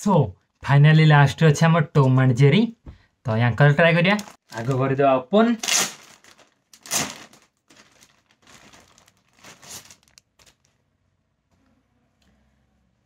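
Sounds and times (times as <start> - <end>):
plastic bag crinkling: 4.1 - 10.8.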